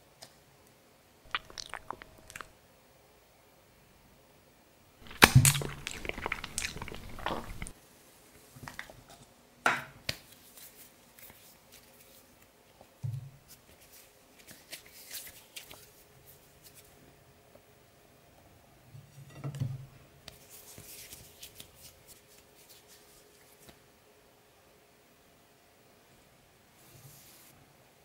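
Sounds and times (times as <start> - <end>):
hands kneading modelling clay: 1.3 - 2.5, 5.0 - 7.8, 20.3 - 23.8
loud crackly burst: 5.0 - 7.7.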